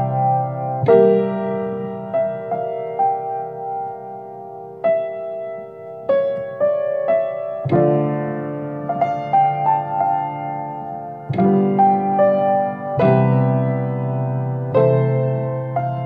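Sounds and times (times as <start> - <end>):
slow piano melody: 0.0 - 16.0.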